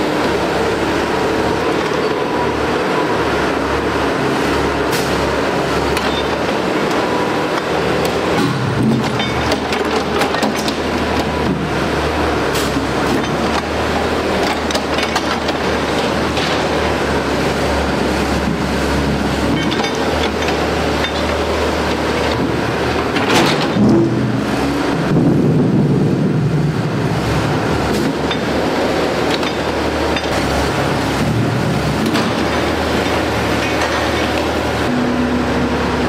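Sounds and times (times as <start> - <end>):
heavy machinery diesel engine: 0.0 - 36.0.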